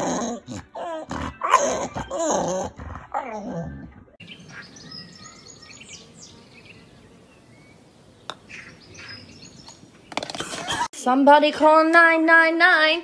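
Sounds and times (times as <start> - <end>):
dog grumbling: 0.0 - 4.2
birds chirping: 0.5 - 10.9.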